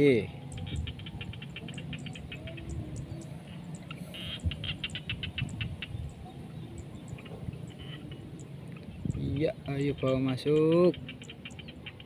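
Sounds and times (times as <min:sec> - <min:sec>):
small animal chirping rapidly: 0:00.4 - 0:06.3, 0:09.1 - 0:12.0.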